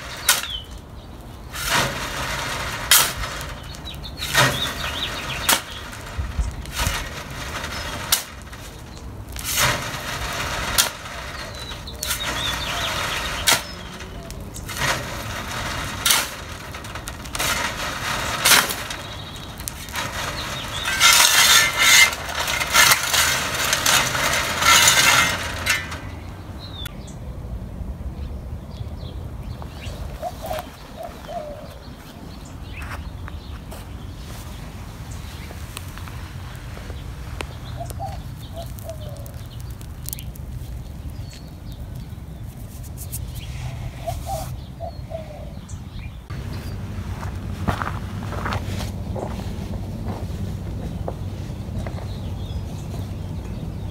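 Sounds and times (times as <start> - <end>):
scraping and rattling stones: 0.0 - 0.8, 1.4 - 26.9, 35.8 - 44.4.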